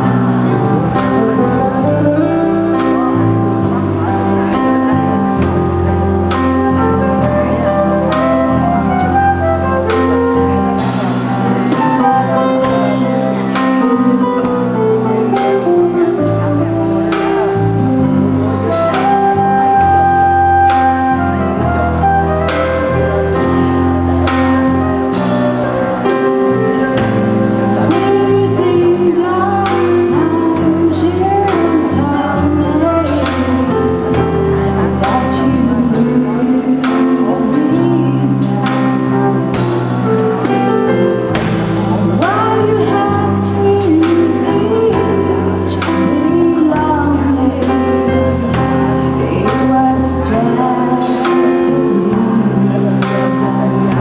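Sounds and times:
drums: 0:00.0 - 0:54.0
electric guitars: 0:00.0 - 0:54.0
woman singing: 0:06.3 - 0:17.8, 0:27.7 - 0:39.9, 0:41.9 - 0:54.0
flute: 0:06.6 - 0:10.8, 0:18.6 - 0:23.7.

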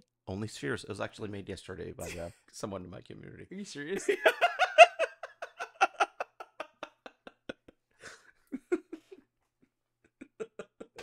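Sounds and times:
men laughing hard: 0:04.0 - 0:09.2, 0:10.1 - 0:11.0.

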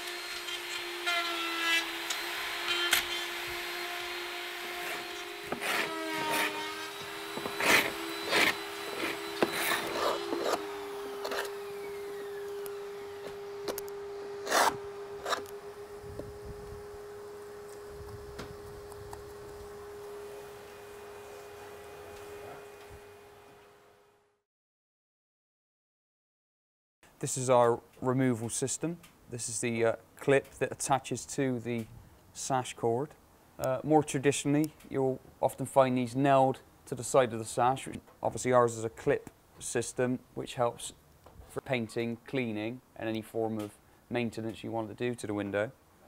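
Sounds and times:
dust extractor motor hum: 0:00.0 - 0:01.1, 0:01.8 - 0:23.6
router motor whining: 0:00.0 - 0:23.4.

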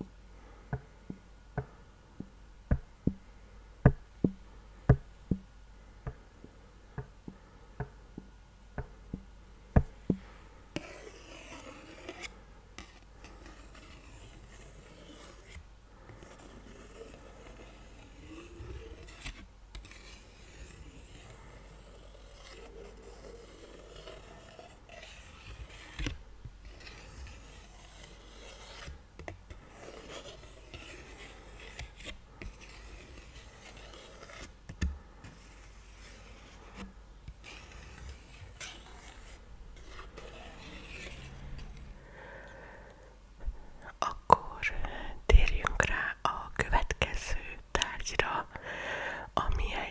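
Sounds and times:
fingers rubbing paper card: 0:10.8 - 0:42.4.

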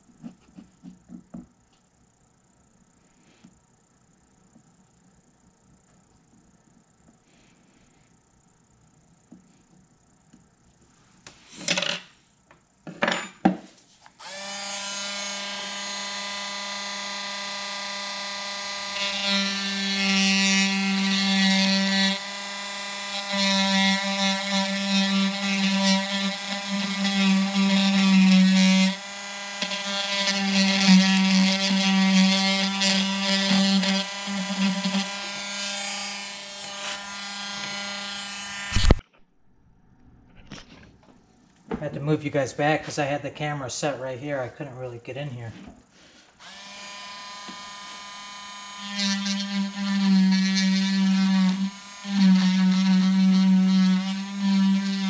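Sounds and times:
rotary tool whining: 0:14.1 - 0:39.5, 0:46.4 - 0:55.0
bit grinding wood: 0:14.2 - 0:39.2.

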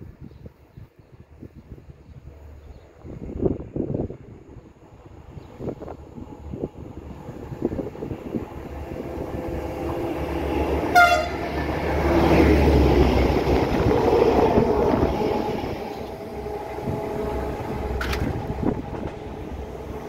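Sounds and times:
train engine and wheels passing: 0:00.0 - 0:20.0
locomotive horn blast: 0:10.8 - 0:11.6.

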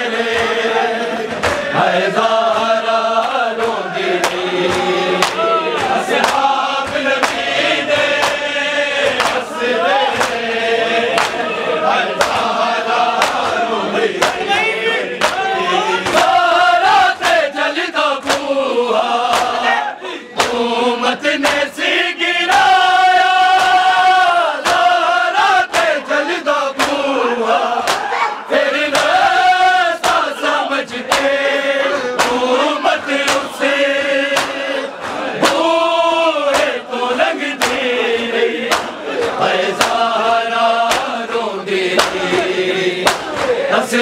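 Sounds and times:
men chanting a slow lament: 0:00.0 - 0:44.0
hands slapping chests: 0:01.3 - 0:10.5, 0:11.1 - 0:16.4, 0:17.1 - 0:17.5, 0:18.2 - 0:18.6, 0:19.3 - 0:19.6, 0:20.4 - 0:20.7, 0:21.3 - 0:21.8, 0:22.5 - 0:26.0, 0:26.7 - 0:27.1, 0:27.8 - 0:28.2, 0:28.9 - 0:31.5, 0:32.2 - 0:38.0, 0:38.6 - 0:43.6.

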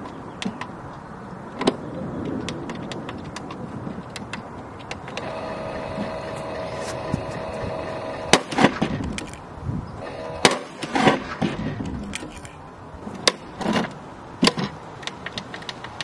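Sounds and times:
toy motor hum: 0:05.1 - 0:08.4.

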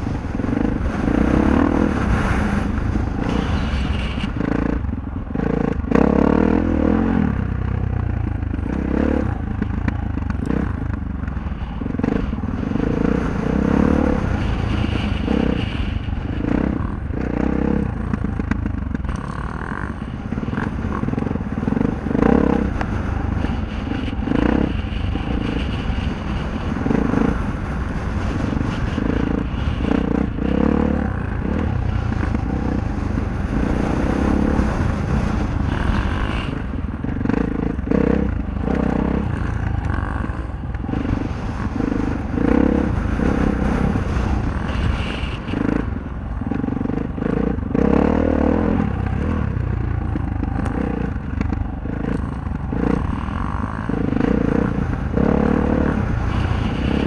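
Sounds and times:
dirt bike engine revving: 0:00.0 - 0:57.0.

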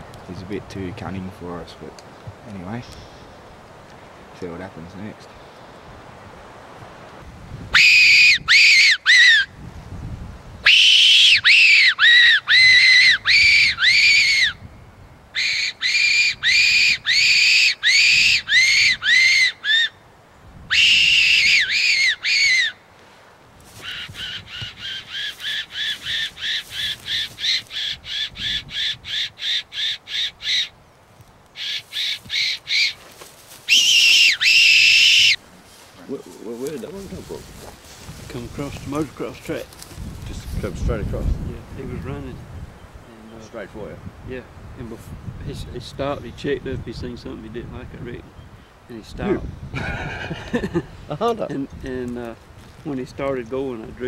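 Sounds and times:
fox whistle squeals: 0:07.7 - 0:09.5, 0:10.6 - 0:14.6, 0:15.4 - 0:20.0, 0:20.7 - 0:22.8, 0:23.8 - 0:30.7, 0:31.6 - 0:33.0, 0:33.7 - 0:35.4.

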